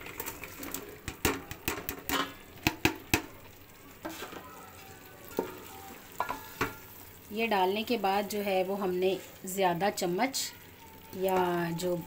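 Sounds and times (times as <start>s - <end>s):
faint sizzle: 0.0s - 12.0s
food clicking into pot: 0.1s - 3.4s.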